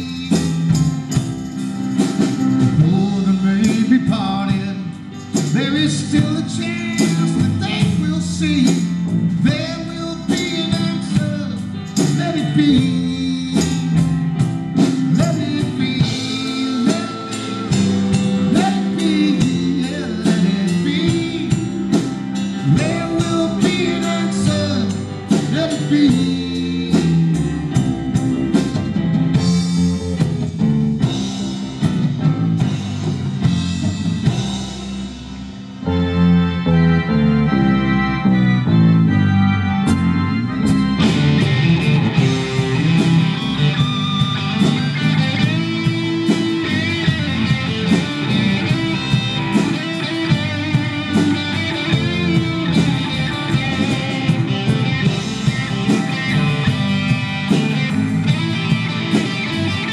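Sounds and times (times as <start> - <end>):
person singing: 0.0 - 1.3, 2.6 - 14.2, 15.0 - 28.6, 40.6 - 56.9
live rock band playing ballad: 0.0 - 59.9.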